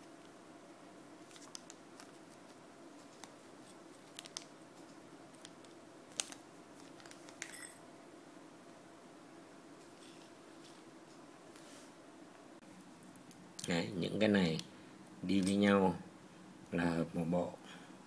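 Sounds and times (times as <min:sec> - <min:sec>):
low room hum: 0:00.0 - 0:18.0
plastic packet crinkling: 0:01.2 - 0:07.5.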